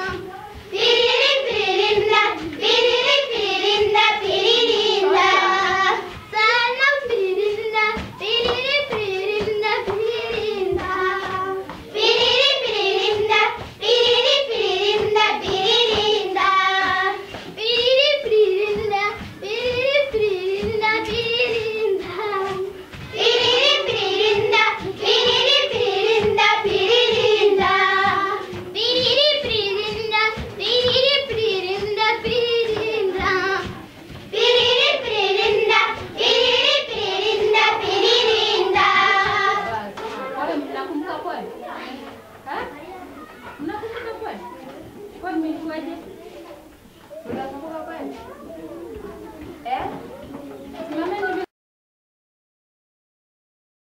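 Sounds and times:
girls singing together: 0.0 - 42.6.

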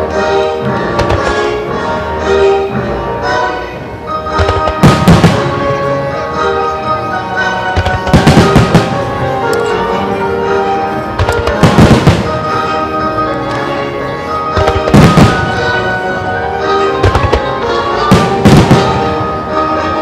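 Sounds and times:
music: 0.0 - 20.0
fireworks bangs: 0.9 - 1.6, 4.3 - 6.0, 7.6 - 19.9.

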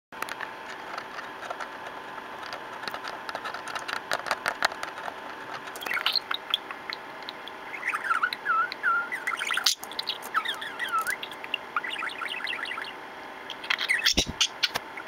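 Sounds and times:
budgerigar clicks and taps: 2.4 - 12.8
budgerigar chirping: 5.8 - 15.0.

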